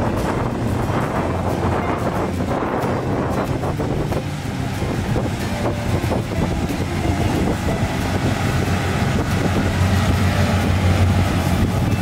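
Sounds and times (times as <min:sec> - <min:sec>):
combine harvester engine drone: 0:00.0 - 0:12.0.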